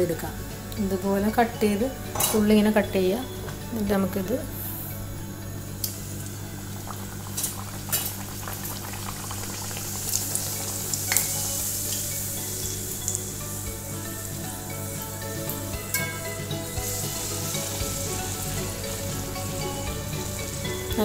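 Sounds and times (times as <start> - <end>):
dough sizzling in hot oil: 5.5 - 21.0.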